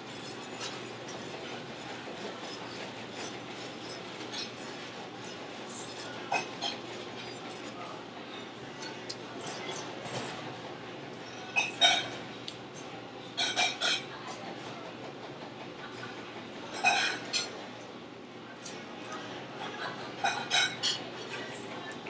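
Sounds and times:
metal utensils and dishes clinking: 0.0s - 7.8s, 11.4s - 12.2s, 13.4s - 14.1s, 16.7s - 17.6s, 18.6s - 22.0s.

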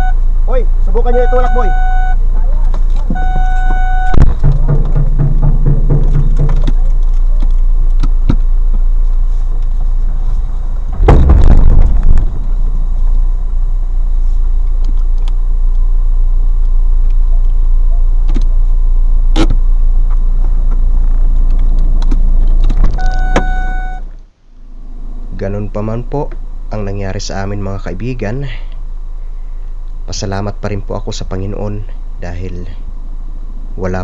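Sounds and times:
car engine idling: 0.0s - 30.2s
loud knock and rustle: 4.2s - 6.9s, 10.9s - 12.6s.

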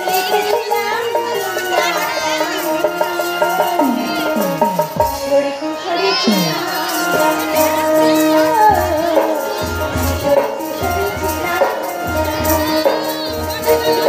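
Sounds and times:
heavy low drum beats: 3.4s - 5.5s, 6.1s - 14.0s.

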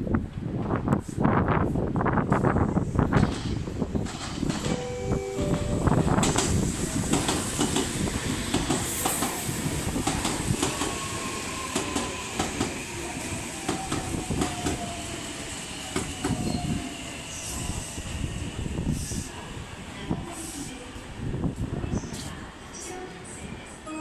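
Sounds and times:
train wheels clicking over rail joints: 6.2s - 9.4s.

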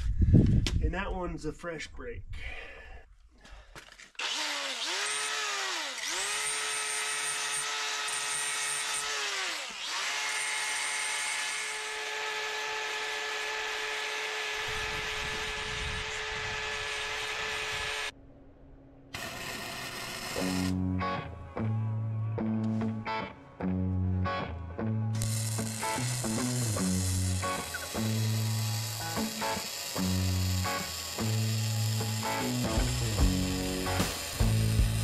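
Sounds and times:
power grinder whining on steel: 4.1s - 18.1s, 19.2s - 21.3s, 25.1s - 35.0s.

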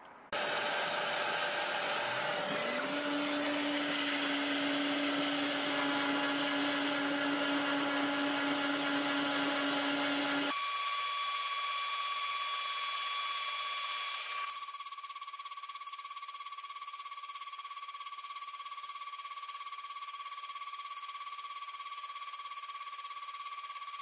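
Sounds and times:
hissy machine noise: 0.3s - 9.9s
milling machine spindle whine: 0.4s - 10.8s.

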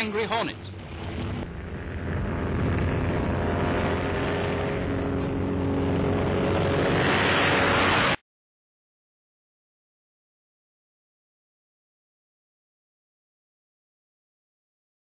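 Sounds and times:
propeller plane engine running: 0.0s - 8.2s.

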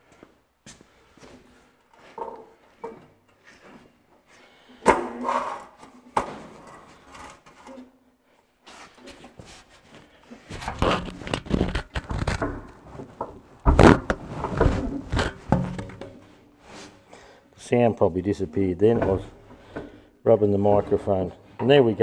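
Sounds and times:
heavy rubbing and scraping: 10.4s - 17.0s.

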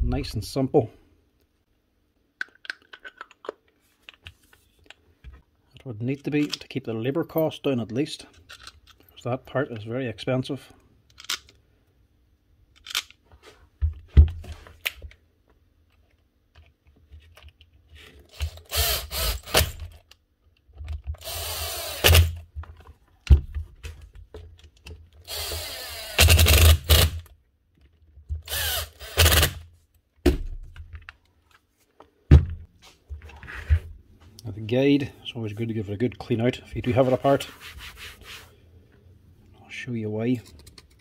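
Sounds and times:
impact driver running: 21.2s - 22.4s, 25.3s - 27.2s, 28.5s - 29.6s.

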